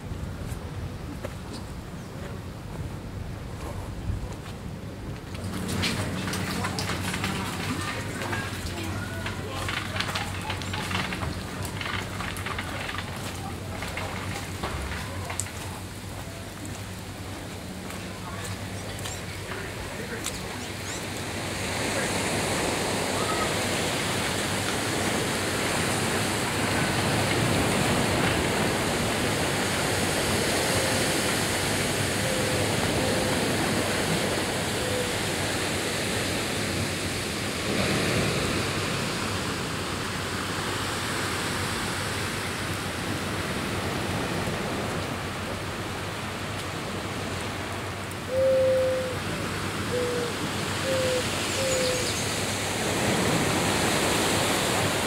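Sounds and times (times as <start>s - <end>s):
surf breaking over rocks: 5.1s - 48.3s, 49.2s - 55.0s
bird hooting calls: 48.3s - 52.3s.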